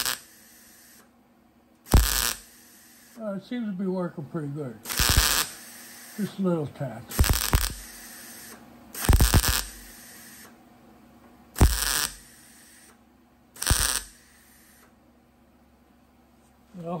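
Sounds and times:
welder bursts: 0.0 - 1.1, 1.8 - 3.2, 4.8 - 10.6, 11.6 - 13.0, 13.6 - 15.0.

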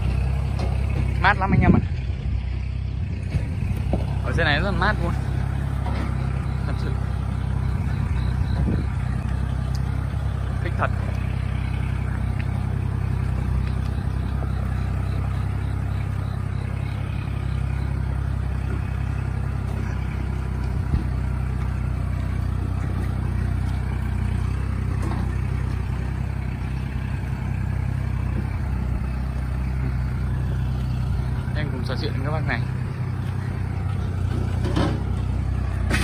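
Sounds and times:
tractor diesel engine under load: 0.0 - 36.0.

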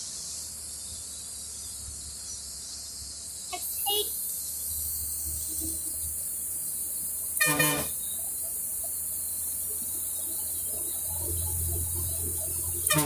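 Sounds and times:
bus engine drone and road noise: 0.0 - 13.0
vehicle horn blast: 7.4 - 8.0, 12.8 - 13.0.

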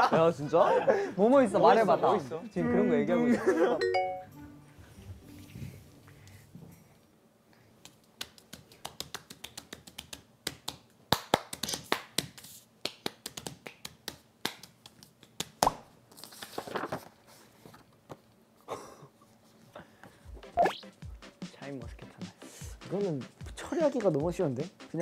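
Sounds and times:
paper crackling and folding: 16.1 - 17.8.

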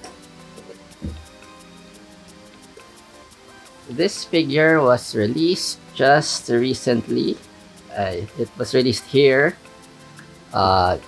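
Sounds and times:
soft background music: 0.0 - 11.0
box thumping on table: 1.0 - 1.3.

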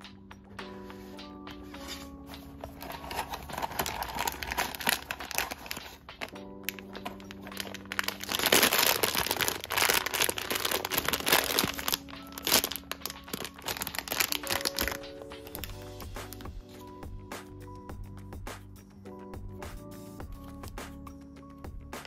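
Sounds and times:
background music: 0.0 - 22.0
foil bag crinkling and tearing: 2.6 - 15.7.

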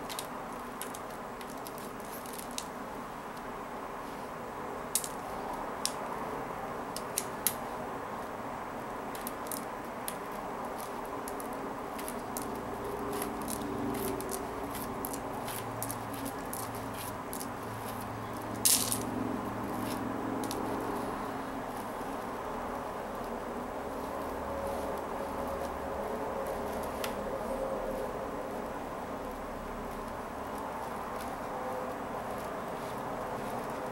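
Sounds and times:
plastic beads clicking: 0.0 - 2.7, 4.9 - 5.2, 9.1 - 19.1, 19.8 - 20.7
low room hum: 0.0 - 33.9.

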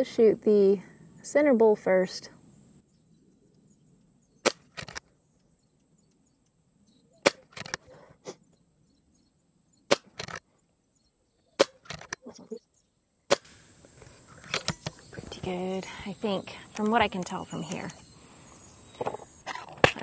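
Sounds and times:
air rifle shots cracking: 4.4 - 5.0, 7.2 - 7.8, 9.9 - 10.4, 11.6 - 12.1, 13.3 - 13.6.

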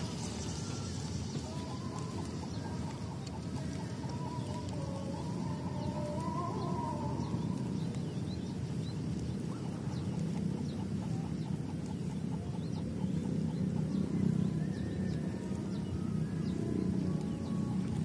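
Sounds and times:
chicken clucking: 0.0 - 7.7
low outdoor rumble: 0.0 - 18.0.

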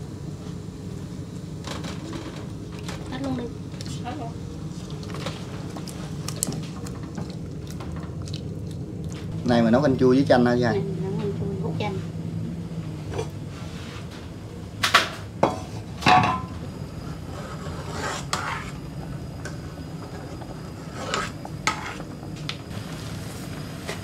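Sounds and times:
steady low hum: 0.0 - 24.0
utensils clinking against pots: 15.5 - 16.5.

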